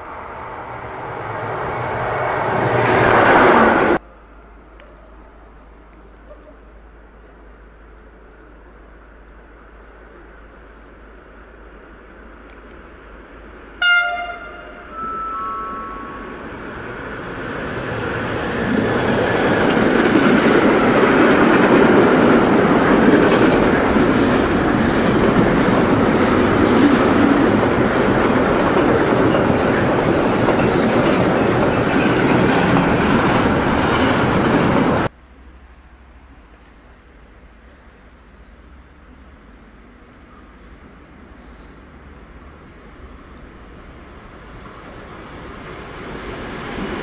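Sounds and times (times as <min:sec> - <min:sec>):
freight train horn blasts: 0:13.8 - 0:16.4
train wheels rolling on rails: 0:14.3 - 0:35.1, 0:41.2 - 0:47.0.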